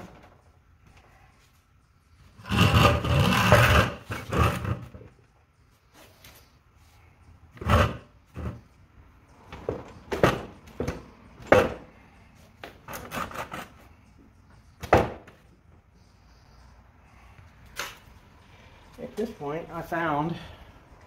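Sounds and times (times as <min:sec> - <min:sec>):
metal tray scraping and knocking: 0:02.4 - 0:05.0.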